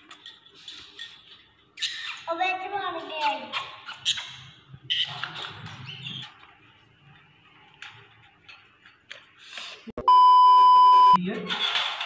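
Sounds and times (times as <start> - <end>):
censor bleep: 10.0 - 11.2.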